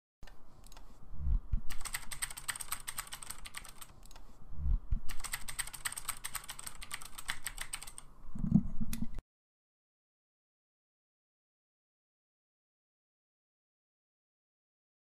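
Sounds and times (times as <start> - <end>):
rapid keystroke clicks: 0.2 - 0.9, 1.5 - 9.2.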